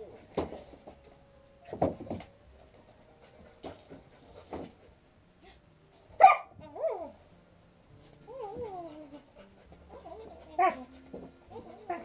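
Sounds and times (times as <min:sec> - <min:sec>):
dog whining and yelping: 0:06.2 - 0:07.2, 0:08.2 - 0:12.0.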